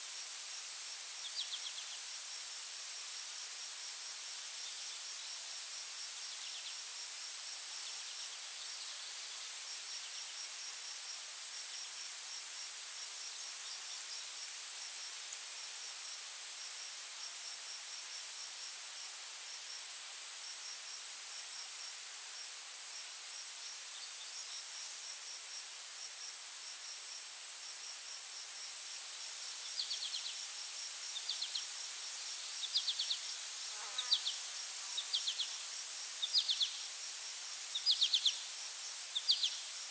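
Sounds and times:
insect chorus: 0.0 - 39.9
pulsing insect chirp: 22.7 - 39.9.

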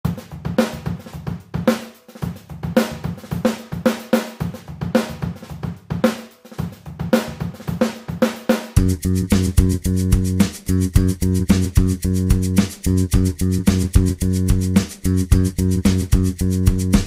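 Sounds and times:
drum kit beat: 0.0 - 17.0
pulsing bass line: 8.8 - 17.0.

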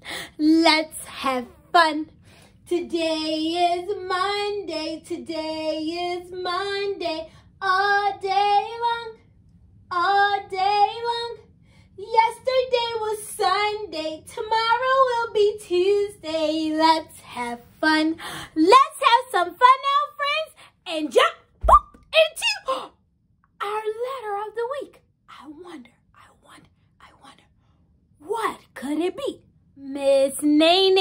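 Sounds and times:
woman singing children's song: 0.2 - 9.2, 9.9 - 11.4, 12.0 - 21.4, 28.4 - 31.0.

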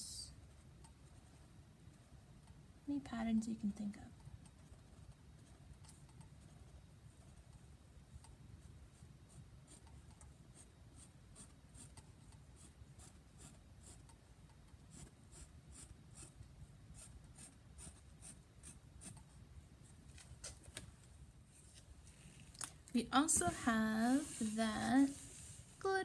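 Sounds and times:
marker scratching on canvas: 8.6 - 14.2, 14.8 - 19.3.

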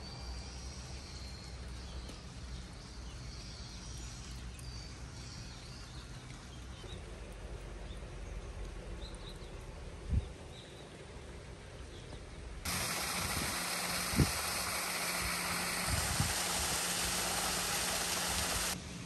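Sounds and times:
waterfall rushing: 12.7 - 18.8.

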